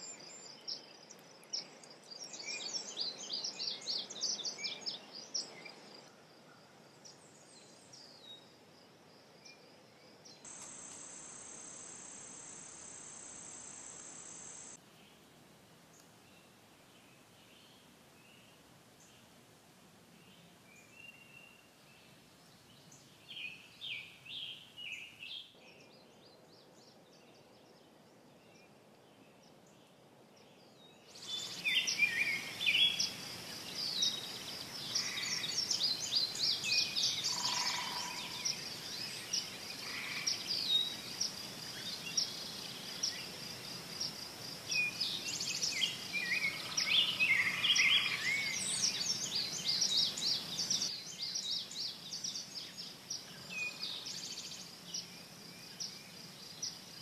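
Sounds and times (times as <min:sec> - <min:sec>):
steady high-pitched whine: 0:10.5 - 0:14.8
songbirds chirping and singing: 0:44.0 - 0:57.0.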